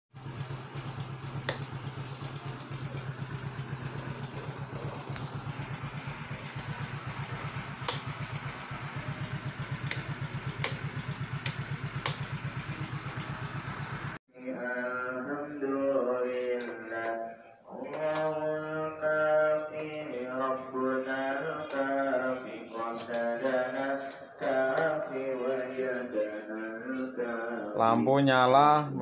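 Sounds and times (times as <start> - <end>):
scooter engine idling: 0.1 - 14.2, 17.8 - 26.6
sharp clicks: 7.8 - 8.1, 9.8 - 12.3.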